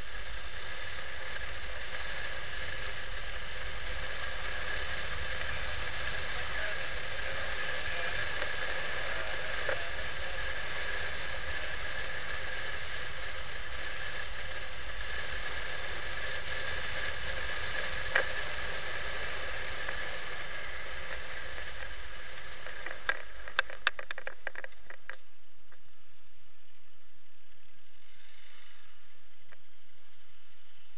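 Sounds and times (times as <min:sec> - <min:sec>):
motorcycle riding noise: 0:00.0 - 0:30.9
thin whine: 0:00.0 - 0:30.9
clicks and rattles: 0:22.8 - 0:25.2.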